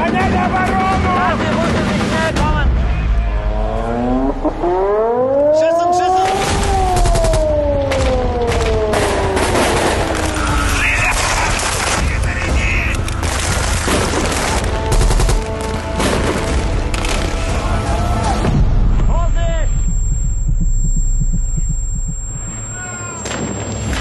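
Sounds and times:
music: 0:00.0 - 0:05.9, 0:06.6 - 0:24.0
automatic gunfire: 0:06.5 - 0:10.4, 0:13.2 - 0:16.5.

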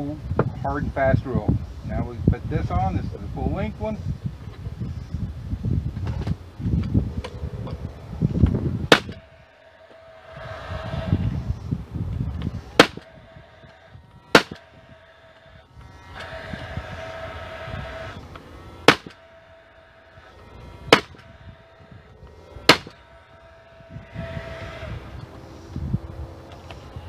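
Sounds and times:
nail gun firing: 0:08.9 - 0:09.2, 0:12.8 - 0:13.0, 0:14.3 - 0:14.6, 0:18.9 - 0:19.2, 0:20.9 - 0:21.2, 0:22.7 - 0:23.0.

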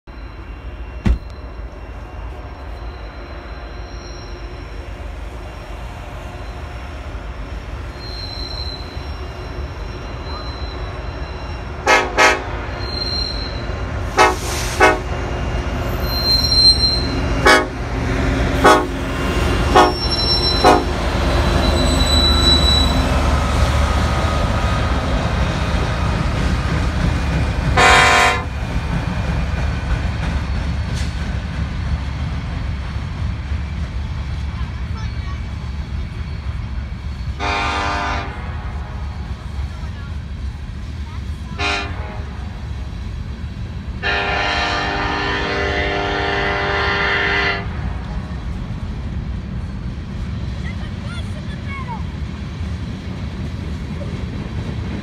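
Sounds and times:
diesel locomotives rumbling past: 0:00.0 - 0:55.0
long train horn blast: 0:11.8 - 0:12.9, 0:14.0 - 0:15.3, 0:17.0 - 0:21.5, 0:27.8 - 0:28.6, 0:37.4 - 0:39.1, 0:41.5 - 0:42.7, 0:44.0 - 0:48.0
short train horn toots: 0:11.8 - 0:12.9, 0:14.1 - 0:15.2, 0:16.9 - 0:17.8, 0:18.6 - 0:19.0, 0:19.7 - 0:21.0, 0:27.8 - 0:28.5, 0:37.4 - 0:38.8, 0:41.6 - 0:42.5, 0:44.0 - 0:47.8.

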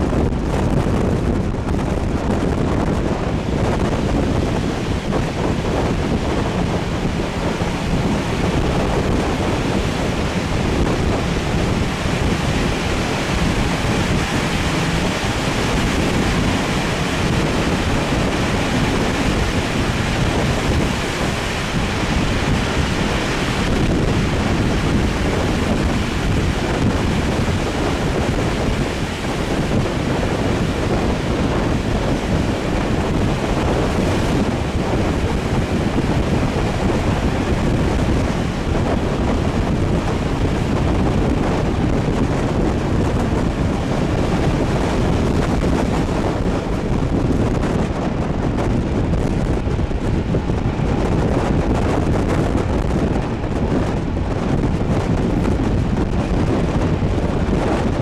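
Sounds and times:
train running rumble: 0:00.0 - 0:58.0
wind rushing over microphone: 0:00.0 - 0:58.0.

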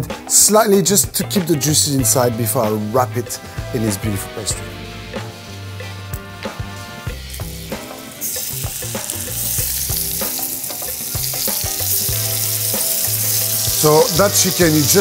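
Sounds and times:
chicken sizzling in fat: 0:02.1 - 0:15.0
butter and oil foaming in a pan: 0:06.5 - 0:15.0.

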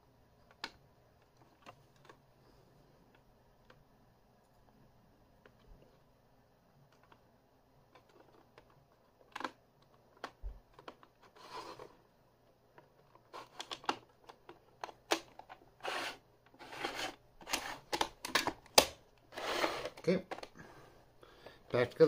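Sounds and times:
plastic cassette clicks and knocks: 0:13.0 - 0:15.6, 0:17.5 - 0:19.0
cassette scraping on wood: 0:15.8 - 0:18.0, 0:19.3 - 0:20.1.

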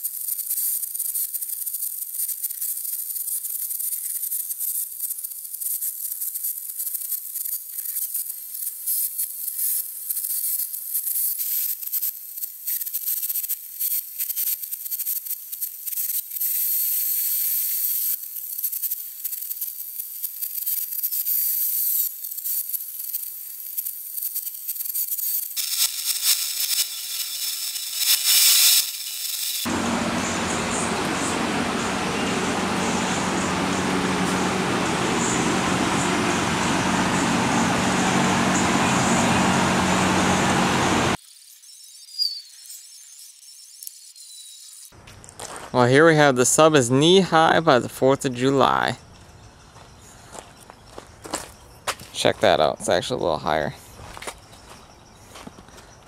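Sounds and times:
paint spray gun hissing: 0:24.7 - 0:41.2
fan air rushing: 0:29.6 - 0:41.2
low motor hum: 0:29.7 - 0:41.2.

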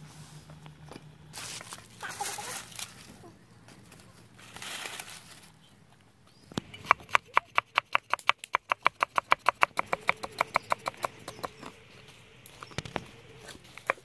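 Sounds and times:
cleaver chopping on wooden board: 0:06.6 - 0:11.6.

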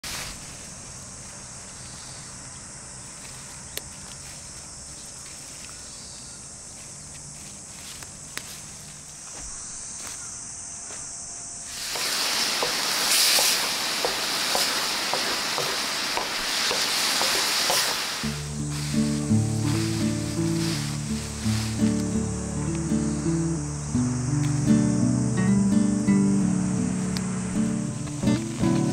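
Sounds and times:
insect trill: 0:00.0 - 0:28.9
food sizzling in a frying pan: 0:11.7 - 0:21.7.

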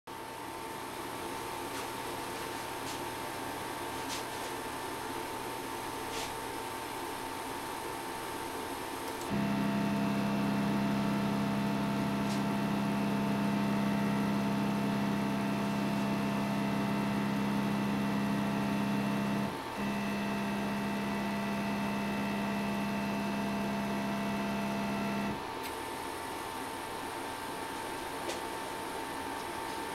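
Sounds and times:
stepper motor whine: 0:09.2 - 0:29.4.

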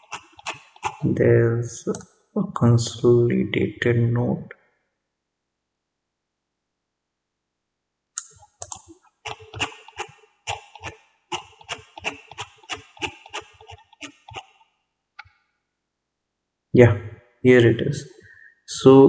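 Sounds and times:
keyboard keys clicking: 0:08.2 - 0:14.5.

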